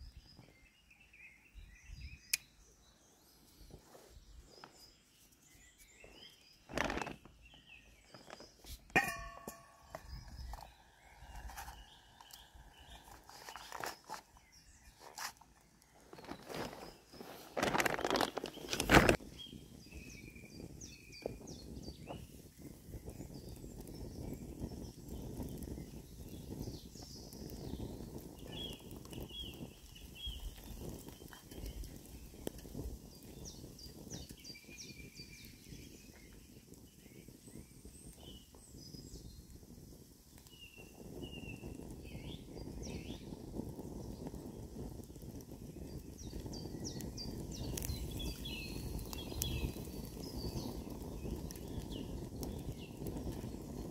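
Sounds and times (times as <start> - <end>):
wind: 0.0 - 53.9
wood fire crackling: 3.4 - 53.9
birds chirping and singing: 9.4 - 39.6, 45.7 - 53.9.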